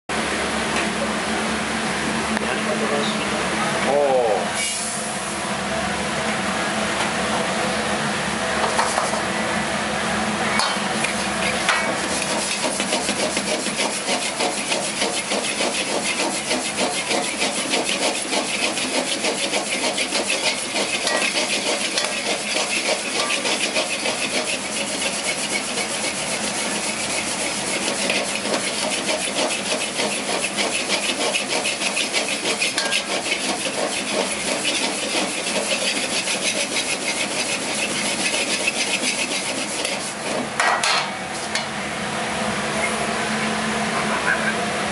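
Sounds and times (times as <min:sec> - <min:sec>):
wok scraping on burner ring: 0:10.7 - 0:41.7
granules rattling in a wok: 0:11.5 - 0:40.5.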